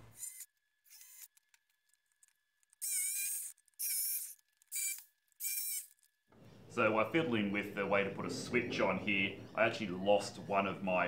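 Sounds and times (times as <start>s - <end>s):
power tool cutting whine: 0.0s - 1.5s, 2.8s - 6.0s.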